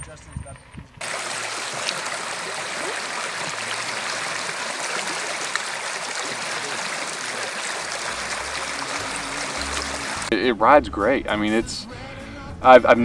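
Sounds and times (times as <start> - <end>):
creek rushing over rocks: 1.0 - 10.3.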